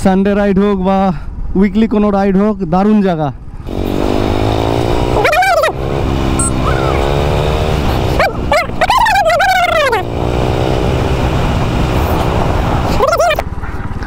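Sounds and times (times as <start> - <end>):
motorcycle engine running: 3.6 - 14.0
loud high wavering calls: 6.4 - 7.1.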